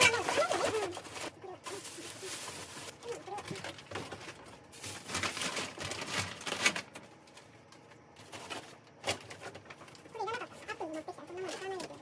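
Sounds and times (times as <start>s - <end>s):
rummaging in plastic bags: 0.0s - 12.0s.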